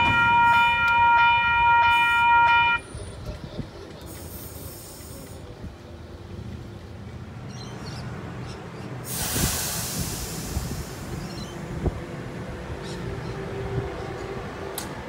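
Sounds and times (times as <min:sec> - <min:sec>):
electric train rumbling past: 0:00.0 - 0:15.0
loud train hiss: 0:04.0 - 0:05.6, 0:09.0 - 0:11.9.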